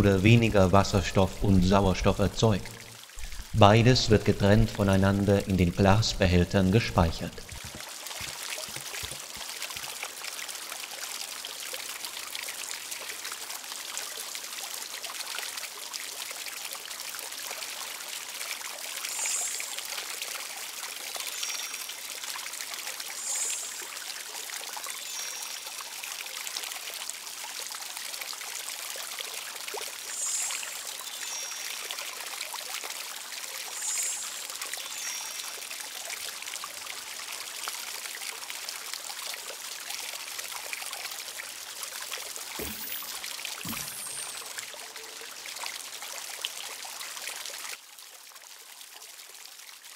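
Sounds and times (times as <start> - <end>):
water running and trickling: 0.1 - 49.9
brief high-pitched sounds: 42.6 - 44.7.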